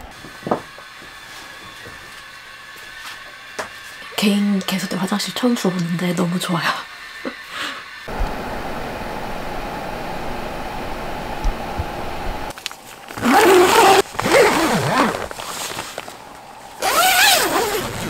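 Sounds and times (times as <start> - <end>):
steady low hum: 2.0 - 18.0
tent zipper being pulled: 13.1 - 16.1, 16.8 - 18.0.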